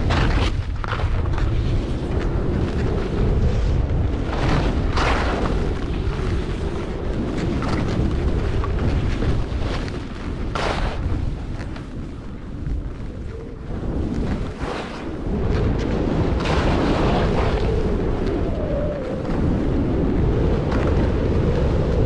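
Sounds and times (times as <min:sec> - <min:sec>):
wind buffeting microphone: 0:00.0 - 0:22.0
edges scraping across snow: 0:07.3 - 0:17.7.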